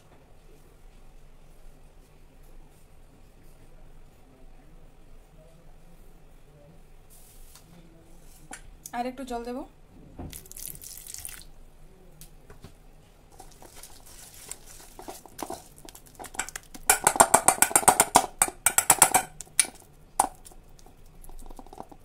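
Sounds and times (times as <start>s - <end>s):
water poured into a bowl: 10.3s - 11.5s
whisk beating batter: 13.3s - 22.0s
whisk clinking against steel bowl: 14.6s - 22.0s.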